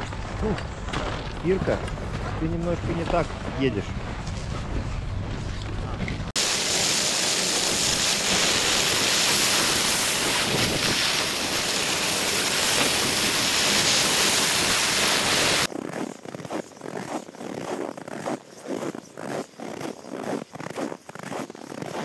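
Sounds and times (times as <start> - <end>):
skis sliding over snow: 6.4 - 22.0.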